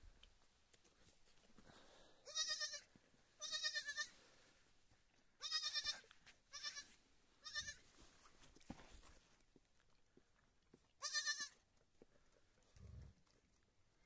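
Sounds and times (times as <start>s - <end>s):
lamb bleating: 2.2s - 4.2s, 5.4s - 7.8s, 11.0s - 11.6s.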